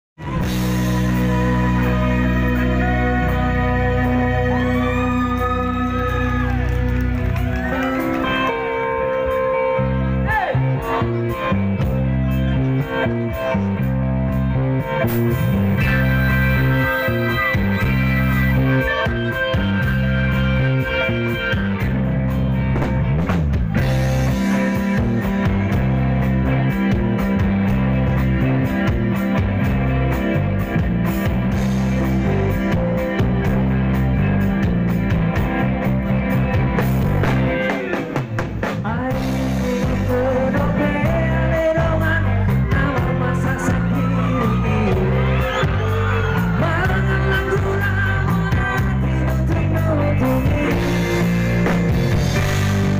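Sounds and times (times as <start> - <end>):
person singing: 0.2 - 6.6, 38.6 - 52.9
bending guitar lead: 0.2 - 52.9
live rock band playing: 0.2 - 52.9.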